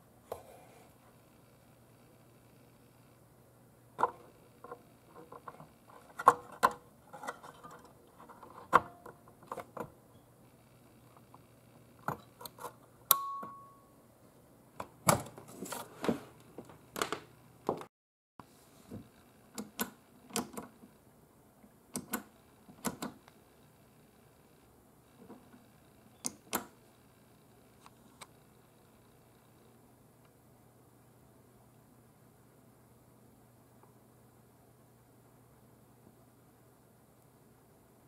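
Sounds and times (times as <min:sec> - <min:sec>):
steady low hum: 0:00.0 - 0:38.0
brief ringing ping: 0:13.1 - 0:13.9.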